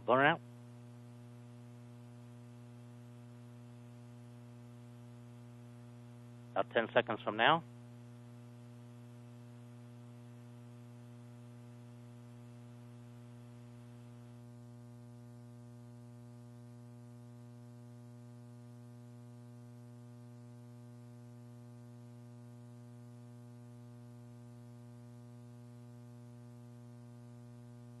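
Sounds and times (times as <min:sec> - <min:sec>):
electrical buzz-hum: 0:00.0 - 0:28.0.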